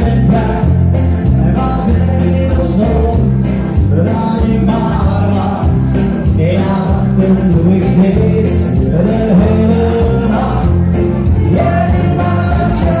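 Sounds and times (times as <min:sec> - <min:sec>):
pop music over pa system: 0:00.0 - 0:13.0.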